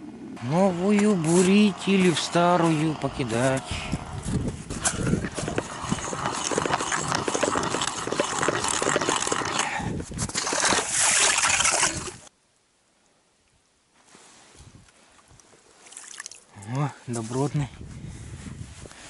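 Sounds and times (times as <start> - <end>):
footsteps crunching through snow: 0.7 - 11.2.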